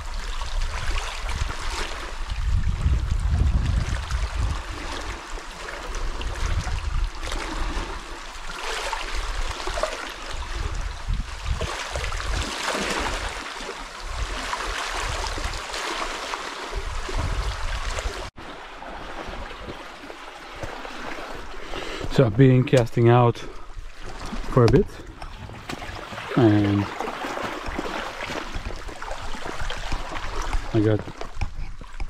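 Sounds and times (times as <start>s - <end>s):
wind buffeting microphone: 0.0s - 8.1s, 9.1s - 13.4s, 16.7s - 18.3s
small waves lapping on rocks: 0.0s - 32.0s.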